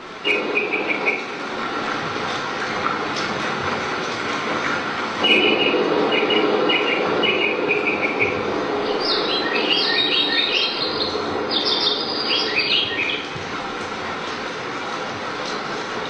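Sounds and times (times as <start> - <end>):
recorded birdsong: 0.2 - 1.4, 5.2 - 13.4.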